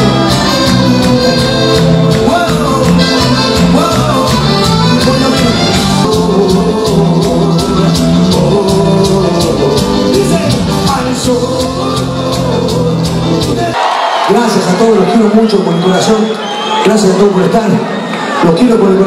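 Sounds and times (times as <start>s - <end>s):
man singing into a microphone: 0.0s - 13.8s
live band dance music: 0.0s - 19.0s.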